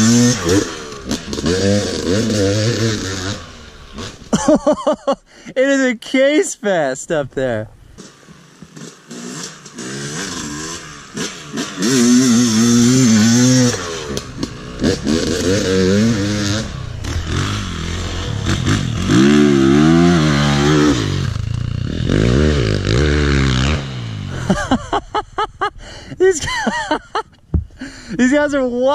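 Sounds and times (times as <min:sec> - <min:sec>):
two-stroke dirt bike engine revving: 0:00.0 - 0:04.9, 0:07.9 - 0:25.0.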